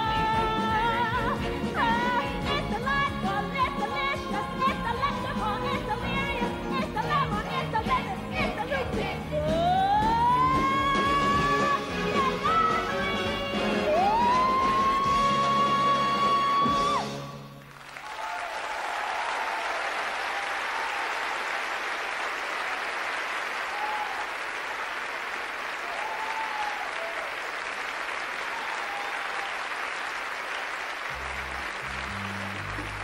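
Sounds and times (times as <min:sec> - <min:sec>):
audience applauding: 0:17.5 - 0:33.0.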